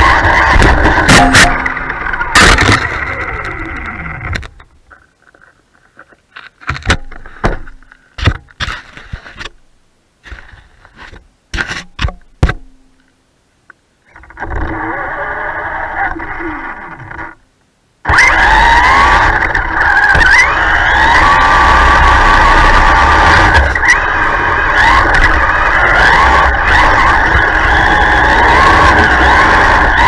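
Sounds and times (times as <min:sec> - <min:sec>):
short knocks and scrapes: 0:10.2 - 0:12.7
toy truck electric motor whining: 0:18.1 - 0:30.0.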